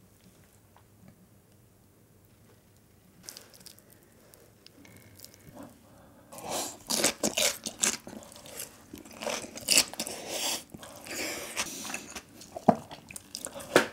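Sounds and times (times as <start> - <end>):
crunching and chewing: 3.2 - 5.8, 6.4 - 13.9.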